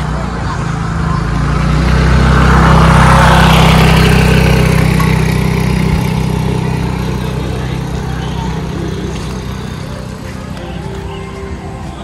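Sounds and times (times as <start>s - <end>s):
car engine running: 0.0s - 12.0s.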